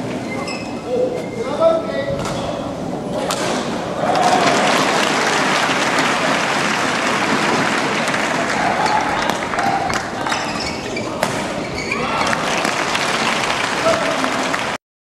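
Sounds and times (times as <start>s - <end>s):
spectators applauding: 4.0s - 10.5s, 12.0s - 14.8s.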